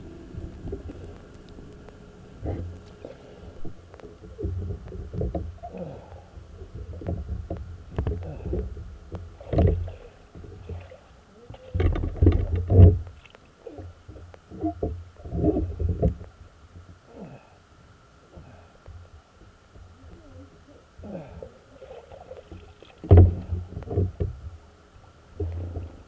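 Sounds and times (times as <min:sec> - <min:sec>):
muffled underwater bumps: 0:00.0 - 0:16.9, 0:21.8 - 0:24.6
faint steady high hum: 0:00.0 - 0:26.0.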